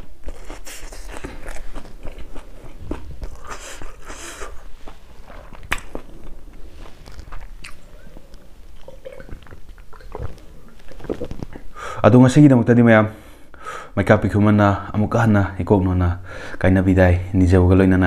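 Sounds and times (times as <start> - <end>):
person chewing crunchy salad: 0.0 - 11.8.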